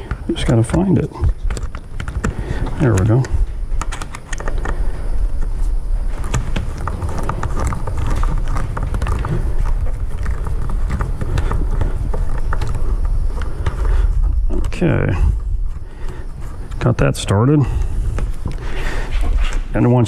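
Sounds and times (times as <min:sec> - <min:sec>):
steady low rumble: 0:00.0 - 0:20.0
screwdriver clicking and scraping: 0:00.1 - 0:04.8.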